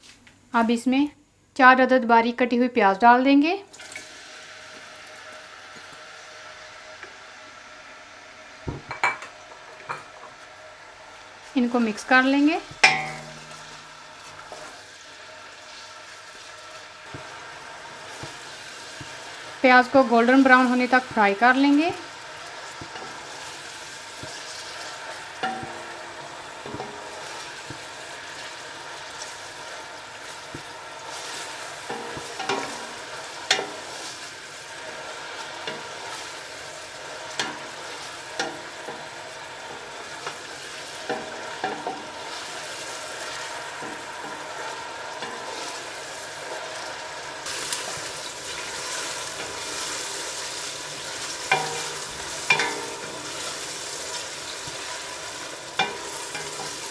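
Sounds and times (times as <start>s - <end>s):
onions sizzling in oil: 3.7s - 56.9s
spatula stirring: 22.0s - 56.9s
spatula knocking against pot: 25.4s - 25.9s, 51.5s - 53.1s.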